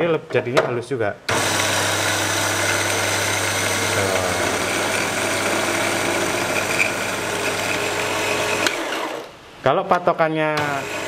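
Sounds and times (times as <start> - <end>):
electric coffee grinder running: 1.3 - 9.3, 10.6 - 11.0.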